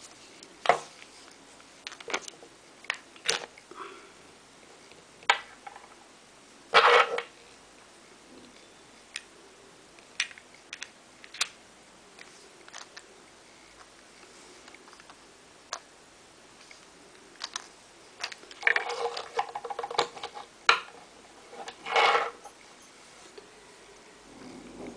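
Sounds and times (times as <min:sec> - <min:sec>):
metal bits rattling on wooden table: 0:06.8 - 0:07.3, 0:18.2 - 0:20.9, 0:21.5 - 0:22.6.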